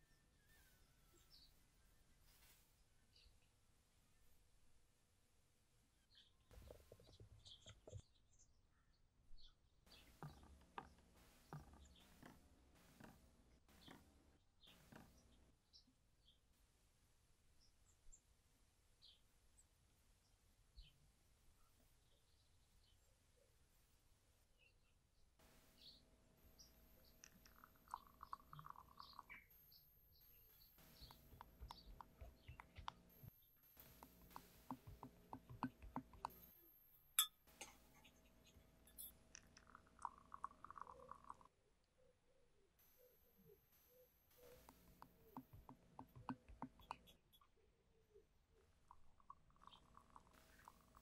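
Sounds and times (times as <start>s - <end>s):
liquid trickling into a glass: 27.4s - 29.5s, 39.4s - 41.5s.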